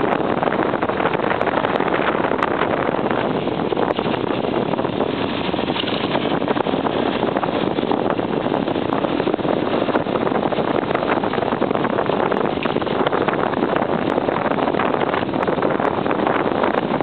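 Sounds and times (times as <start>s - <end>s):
wind on microphone: 0.0s - 17.0s
tyres crackling over gravel: 5.1s - 7.2s.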